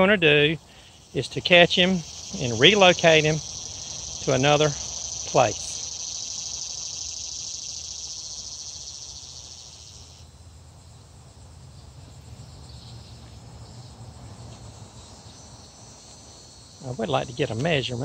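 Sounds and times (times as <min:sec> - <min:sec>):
high-pitched insect buzzing: 0:01.6 - 0:10.2.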